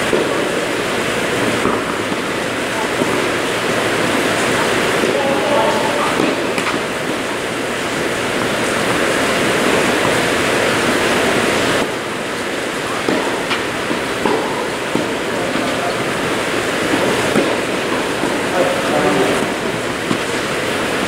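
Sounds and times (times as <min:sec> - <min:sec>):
loud rushing noise: 0:00.0 - 0:21.0
tennis racket hitting ball: 0:01.6 - 0:02.2, 0:05.0 - 0:06.9, 0:13.0 - 0:16.0, 0:16.9 - 0:20.2.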